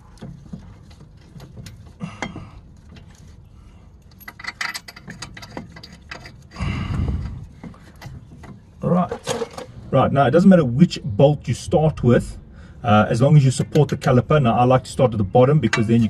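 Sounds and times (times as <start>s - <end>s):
small metallic clicks and rattles: 4.0s - 6.6s.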